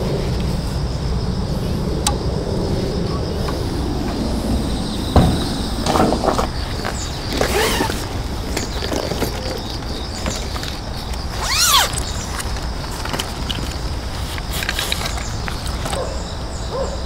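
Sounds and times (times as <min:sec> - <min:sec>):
wind rumble on microphone: 0:00.0 - 0:16.9.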